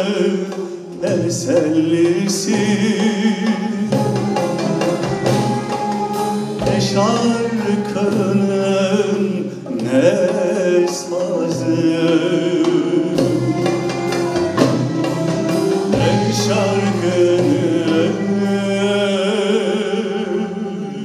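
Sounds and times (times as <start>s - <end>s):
percussion: 0.0s - 19.1s
man singing: 0.0s - 21.0s
violins cello and oud ensemble: 0.0s - 21.0s.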